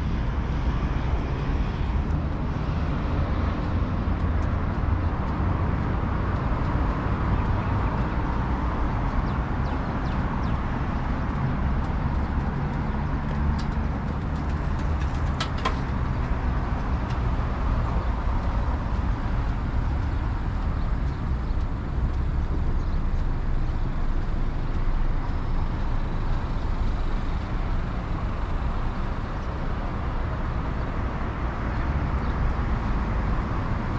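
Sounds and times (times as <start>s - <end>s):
road traffic passing: 0.0s - 33.9s.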